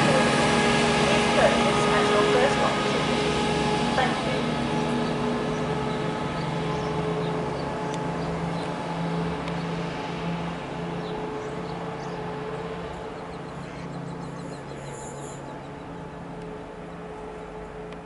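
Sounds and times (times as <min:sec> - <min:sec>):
diesel train engine hum: 0:00.0 - 0:18.0
high squeal: 0:14.3 - 0:15.7.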